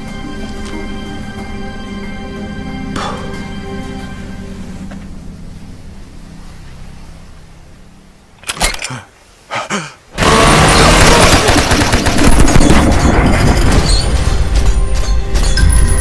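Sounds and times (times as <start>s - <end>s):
machine gun firing: 10.2s - 14.2s.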